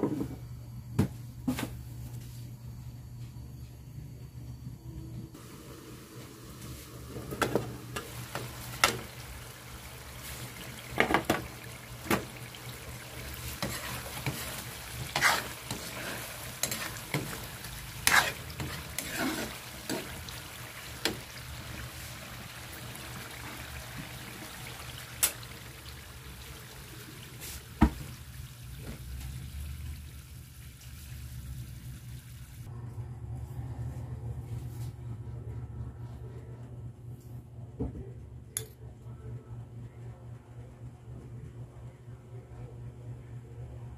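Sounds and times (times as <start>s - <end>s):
sauce bubbling and sizzling: 5.4s - 32.7s
metal ladle scraping a wok: 13.5s - 20.2s.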